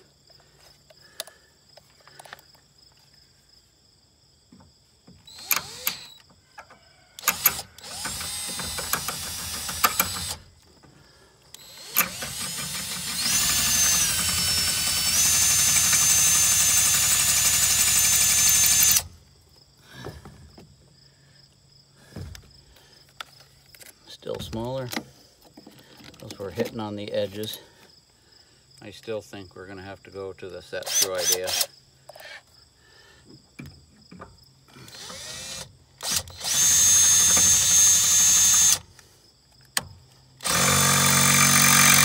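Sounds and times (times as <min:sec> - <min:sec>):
cordless drill whining: 0:05.2 - 0:06.3, 0:07.2 - 0:10.5, 0:11.5 - 0:19.2, 0:30.8 - 0:31.7, 0:34.8 - 0:38.9, 0:40.4 - 0:42.0.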